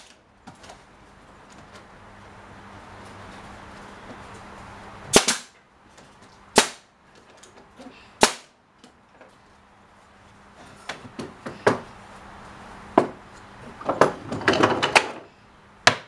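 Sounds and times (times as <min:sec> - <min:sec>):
nail gun firing into wood: 0:05.1 - 0:05.5, 0:06.6 - 0:06.8, 0:08.2 - 0:08.5.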